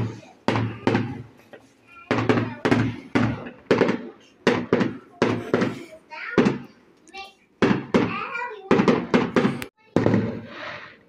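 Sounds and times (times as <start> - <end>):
fireworks bangs: 0.0 - 1.4, 2.1 - 5.8, 7.6 - 10.8.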